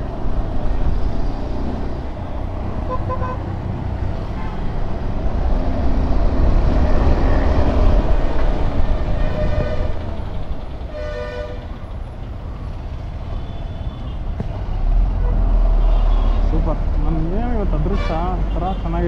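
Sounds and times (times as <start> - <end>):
vehicle horn honking: 2.9 - 3.4.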